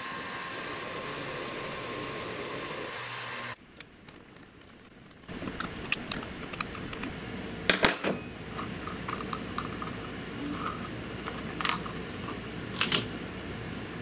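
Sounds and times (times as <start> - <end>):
metallic clicks and clinks: 3.8 - 10.0.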